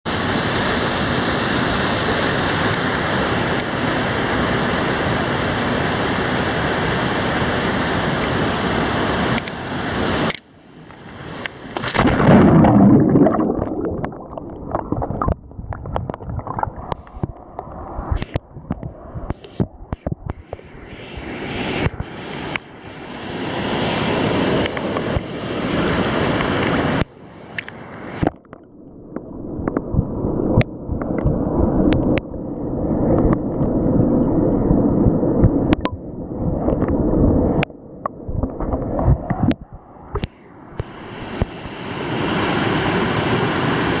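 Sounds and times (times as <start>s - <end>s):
muffled underwater rushing: 10.6s - 44.0s
water sloshing and splashing: 11.4s - 21.2s
waterfall rushing: 19.3s - 28.4s.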